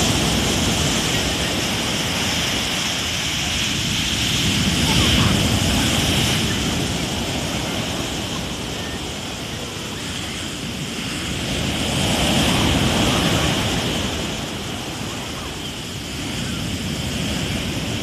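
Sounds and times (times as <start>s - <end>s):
waves breaking on beach: 0.0s - 18.0s.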